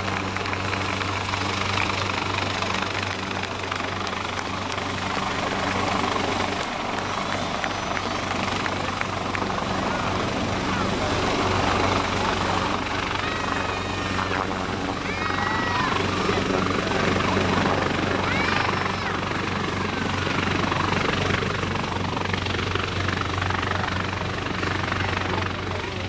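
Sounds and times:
low drone: 0:00.0 - 0:14.1
helicopter rotor noise: 0:00.0 - 0:26.0.

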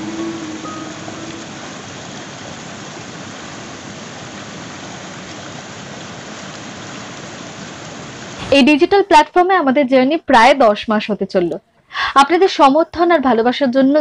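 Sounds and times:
river rushing over rocks: 0:00.0 - 0:08.5.

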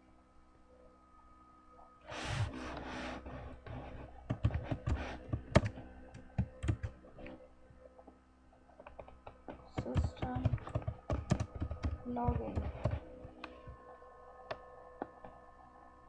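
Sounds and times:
keyboard typing: 0:04.3 - 0:07.0, 0:08.9 - 0:13.8.

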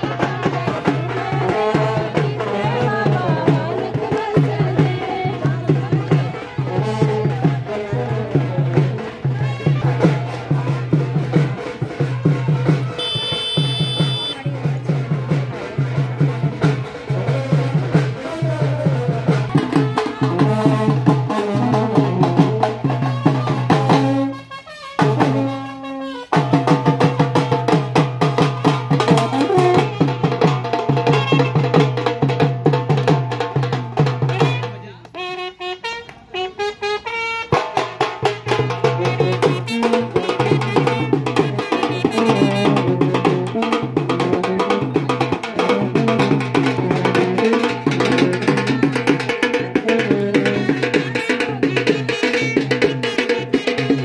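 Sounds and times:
drums keeping steady beat: 0:00.0 - 0:54.0
brass band playing: 0:12.9 - 0:14.4, 0:19.8 - 0:26.6, 0:29.0 - 0:30.4, 0:35.1 - 0:44.9, 0:45.6 - 0:54.0.

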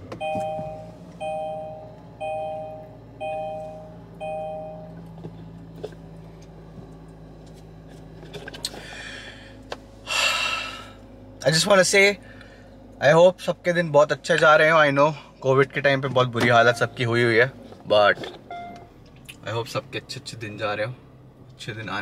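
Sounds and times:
car engine idling: 0:00.0 - 0:22.0
two-note warning chime: 0:00.2 - 0:05.0, 0:16.6 - 0:17.0.

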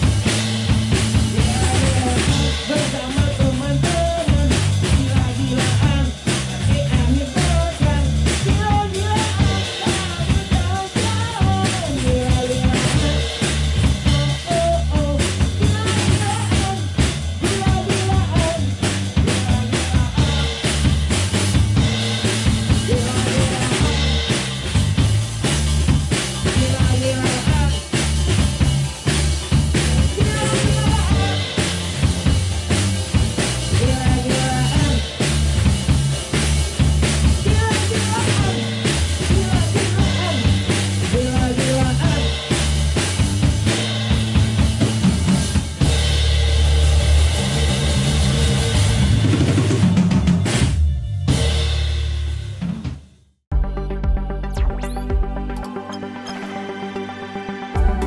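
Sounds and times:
live band playing: 0:00.0 - 0:52.8, 0:53.5 - 0:58.0
person singing into microphone: 0:01.4 - 0:20.6, 0:22.9 - 0:24.3, 0:26.5 - 0:27.9, 0:29.8 - 0:31.6, 0:33.7 - 0:35.1, 0:37.4 - 0:40.5, 0:41.1 - 0:42.4.

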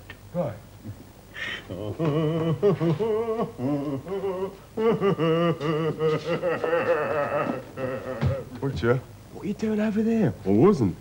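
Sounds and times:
man singing with vibrato: 0:01.7 - 0:08.5.

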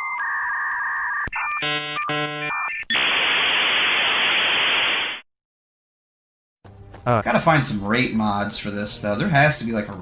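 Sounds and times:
modem static hiss: 0:02.9 - 0:05.2.

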